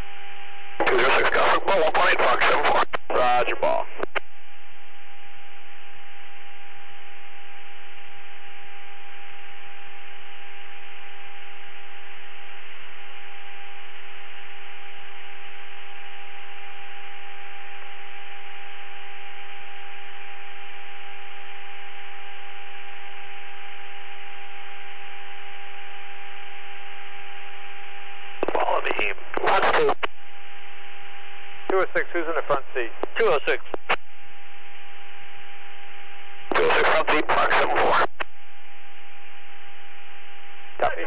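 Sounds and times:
constant hum tone: 0.0 - 41.0
radio static hiss: 0.7 - 5.3, 25.6 - 41.0.

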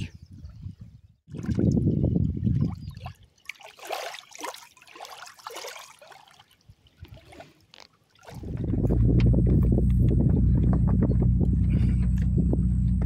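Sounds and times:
wind rumble on microphone: 0.0 - 3.1, 8.4 - 13.0
small waves lapping on shore: 2.8 - 8.5.

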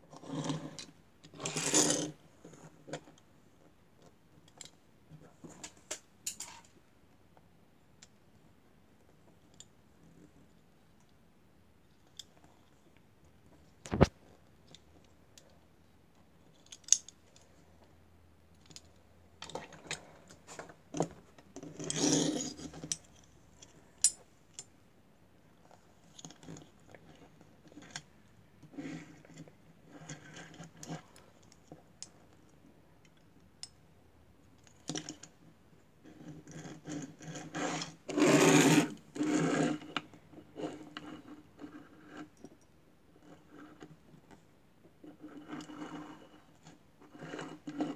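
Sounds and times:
toys scraping on wood: 1.4 - 2.2, 20.5 - 22.9, 36.1 - 42.3, 45.3 - 47.9.

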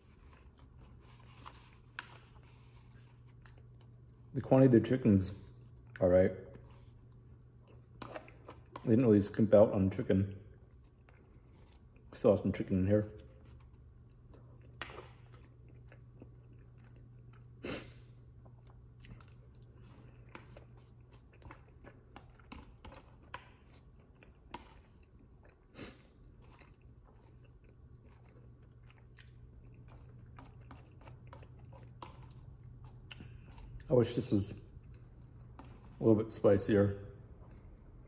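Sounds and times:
faint chewing: 13.1 - 34.0.

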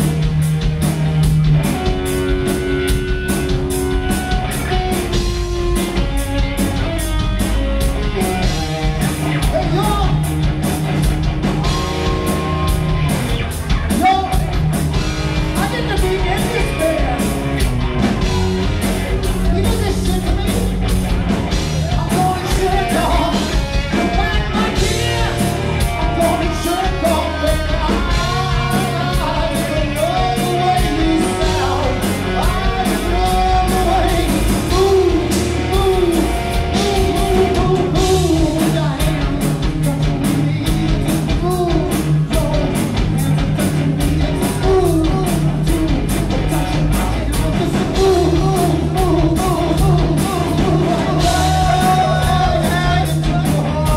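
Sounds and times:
bass guitar: 0.0 - 53.9
drum kit: 0.0 - 53.9
electric guitars: 0.0 - 53.9
person singing: 21.8 - 53.9.

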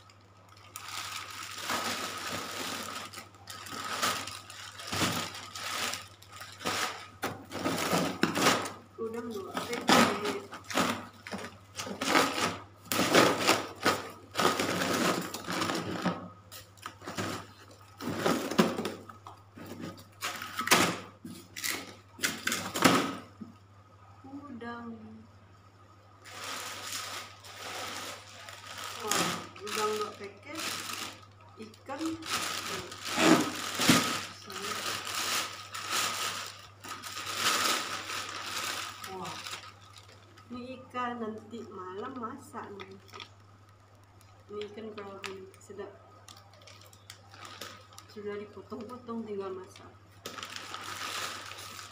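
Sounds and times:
plastic bags crinkling: 0.0 - 23.3, 26.2 - 51.9.

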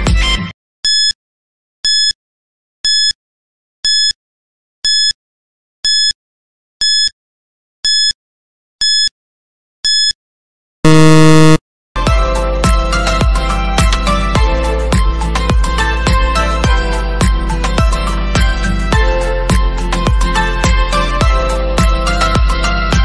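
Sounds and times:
long loud buzzer: 10.9 - 11.6
short high beeps: 10.9 - 11.6.

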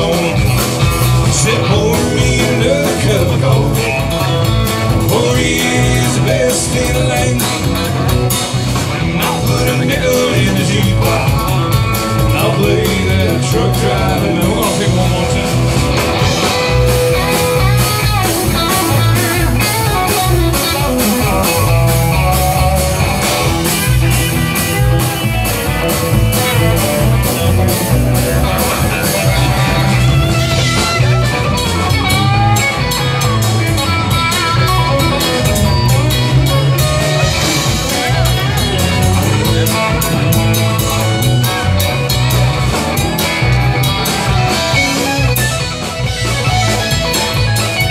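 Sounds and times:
live country-rock band playing: 0.0 - 47.9.

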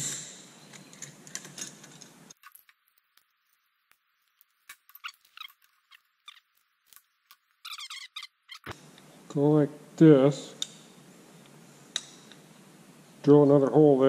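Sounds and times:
metal clicks and squeaks: 4.4 - 8.8.

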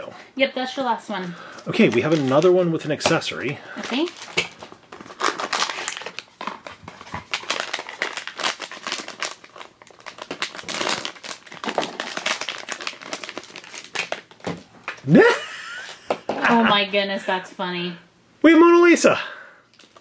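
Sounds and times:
foil bag crinkling: 1.4 - 15.0, 19.7 - 20.0.

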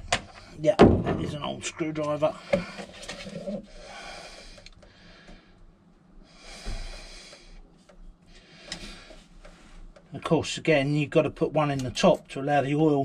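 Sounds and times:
man breathing heavily through nose: 2.3 - 9.9.

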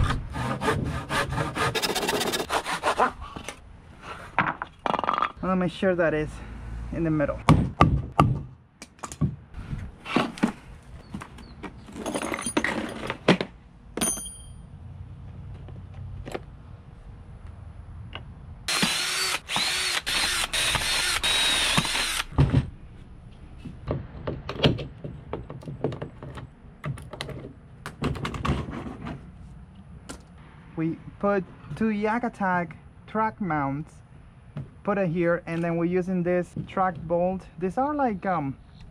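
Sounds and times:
cordless drill into wood: 18.7 - 22.4.

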